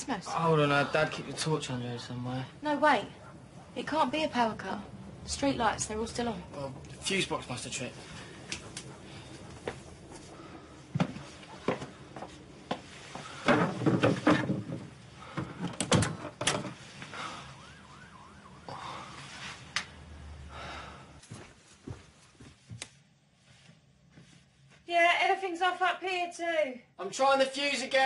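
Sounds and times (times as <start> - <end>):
objects knocking and rattling: 12.7 - 16.8.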